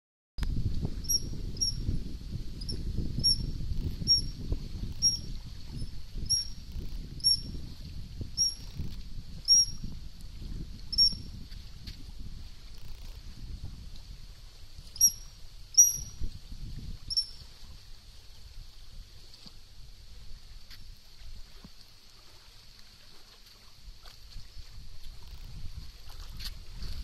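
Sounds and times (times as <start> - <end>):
otter squeaking whistles: 1.1 - 1.8, 2.6 - 4.4, 5.0 - 6.6, 7.2 - 7.5, 8.4 - 8.7, 9.5 - 9.8, 10.9 - 11.2, 15.0 - 16.2, 17.1 - 17.4.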